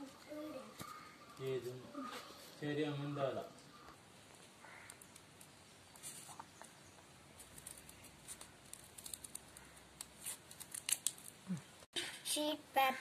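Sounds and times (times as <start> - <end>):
scissors snipping paper: 7.4 - 11.3.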